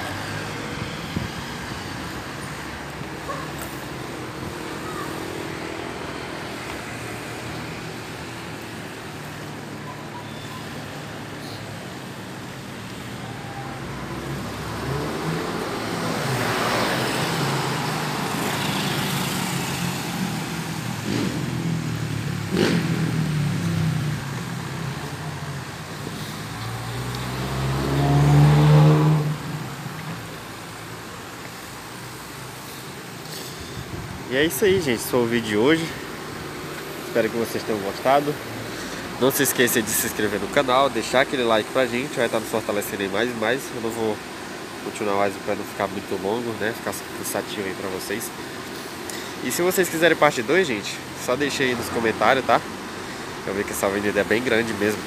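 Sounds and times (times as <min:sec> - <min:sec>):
cars passing: 0:00.0 - 0:55.0
vehicle engine accelerating: 0:12.8 - 0:30.9.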